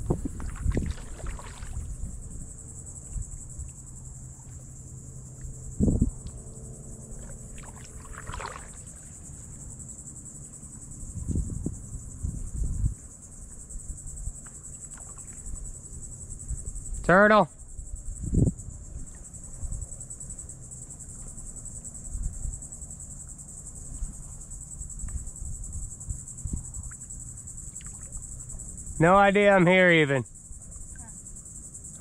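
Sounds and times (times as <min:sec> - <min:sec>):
paddle thumping and splashing: 0:00.0 - 0:02.0, 0:07.2 - 0:09.1
high-pitched insect trill: 0:00.0 - 0:32.0.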